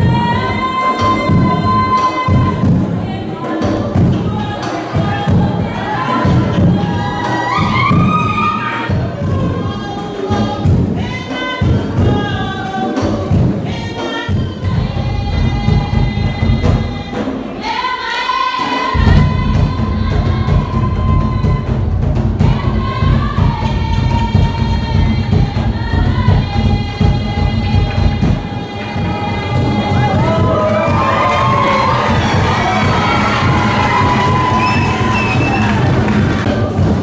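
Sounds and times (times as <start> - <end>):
group singing: 0.0 - 37.0
steady drumming: 14.3 - 37.0.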